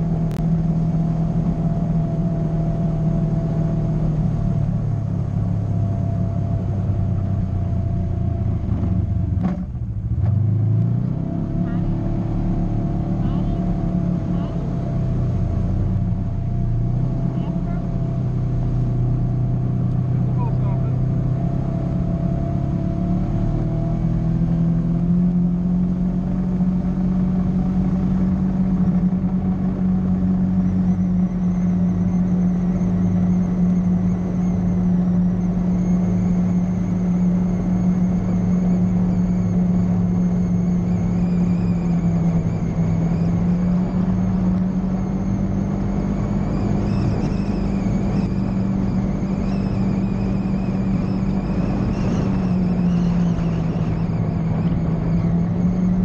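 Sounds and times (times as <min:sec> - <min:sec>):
utility vehicle engine running: 0:00.0 - 0:56.0
faint high whine: 0:30.1 - 0:56.0.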